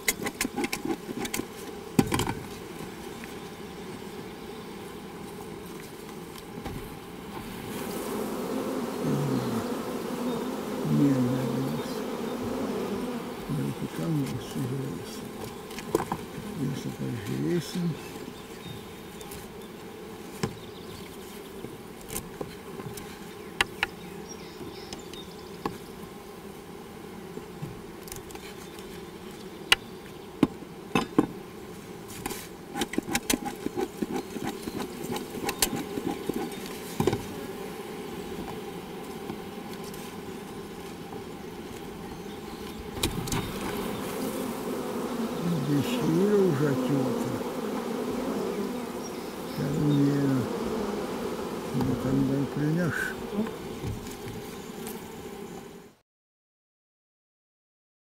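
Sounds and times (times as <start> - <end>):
bees buzzing: 0.0 - 56.0
metal tool scraping wooden frames: 32.1 - 37.0.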